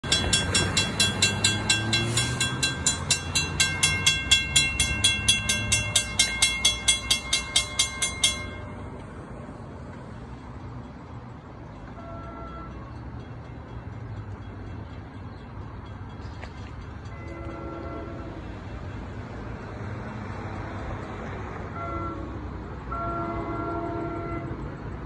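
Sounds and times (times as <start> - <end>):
car driving over crossing: 0.0 - 10.2
crossing warning bell ringing: 0.0 - 18.6
low traffic rumble: 0.0 - 25.0.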